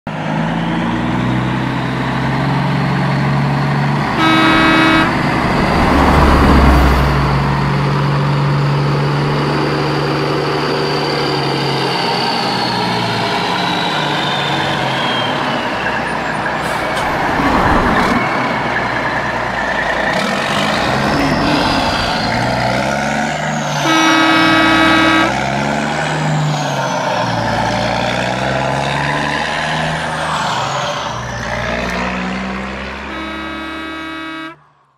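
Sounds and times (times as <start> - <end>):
truck engine running: 0.9 - 12.6
truck horn blasts: 4.0 - 6.9, 23.7 - 25.9, 31.9 - 34.7.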